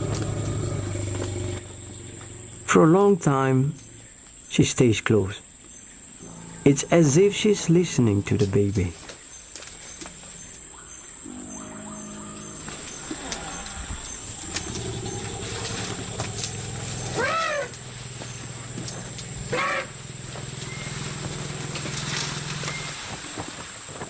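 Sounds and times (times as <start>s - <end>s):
elephants rumbling: 0.0s - 4.6s, 6.0s - 7.7s, 9.6s - 24.0s
high insect buzz: 0.0s - 4.7s, 5.4s - 7.8s, 9.4s - 23.3s
elephant higher calls: 6.2s - 7.0s, 9.9s - 23.1s.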